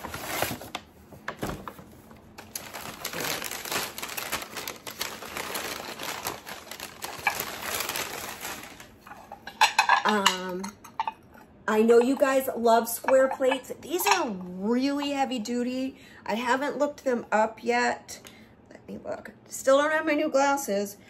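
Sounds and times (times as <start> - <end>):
rustling wrapping: 0.0 - 10.0.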